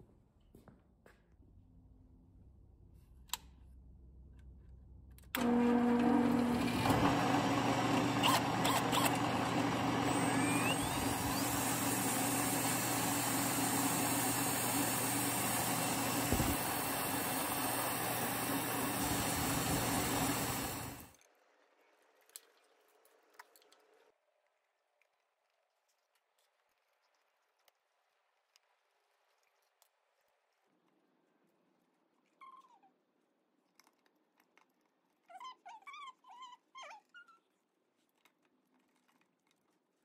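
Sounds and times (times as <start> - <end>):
drill press motor whir: 5.3 - 21.1.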